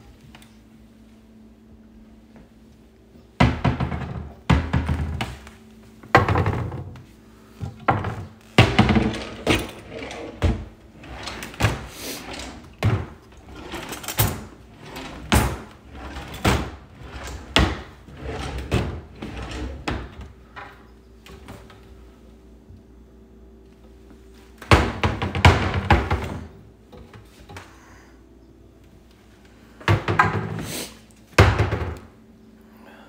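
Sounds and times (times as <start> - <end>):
cabinet doors knocking shut: 3.4 - 5.4, 24.7 - 26.5, 29.9 - 30.6, 31.4 - 32.1.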